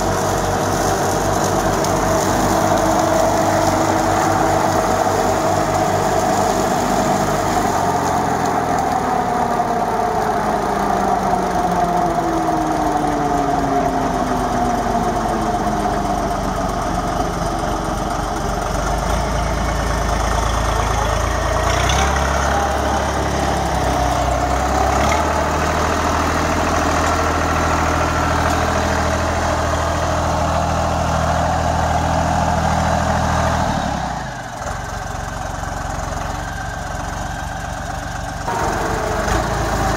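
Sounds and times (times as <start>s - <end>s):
rotary mulcher cutting grass: 0.0s - 39.9s
tractor diesel engine running: 0.0s - 39.9s
deeper rumble: 38.4s - 39.9s.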